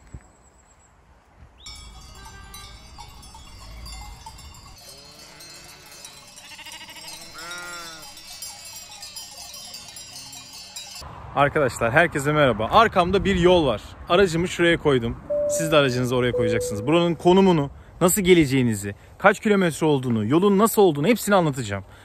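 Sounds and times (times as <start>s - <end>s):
neck bells clanking: 1.7s - 11.0s, 15.3s - 17.4s
sheep bleating: 5.0s - 8.1s.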